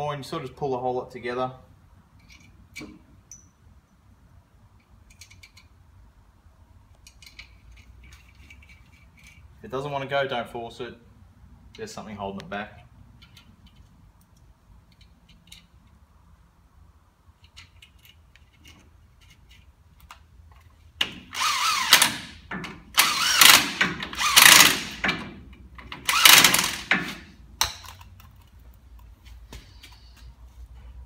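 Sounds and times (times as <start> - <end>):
cordless drill bursts: 21.3 - 25.1, 26.0 - 27.2.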